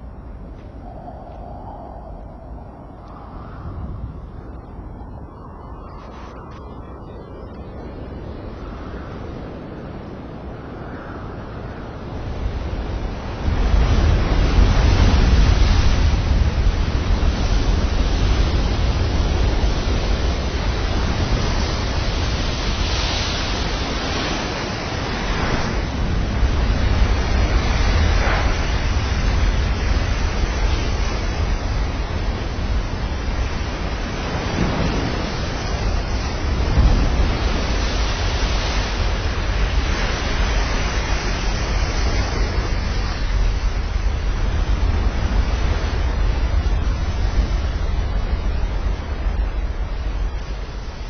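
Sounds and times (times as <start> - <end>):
surf rushing: 0.0 - 51.0
wind noise: 0.0 - 51.0.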